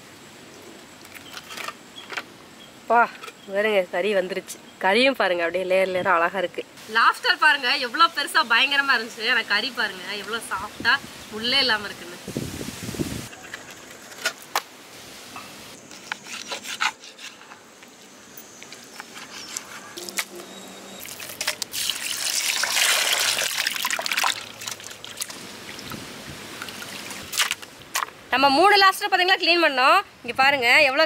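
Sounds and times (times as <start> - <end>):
water sloshing in steel bowl: 21.0 - 26.0.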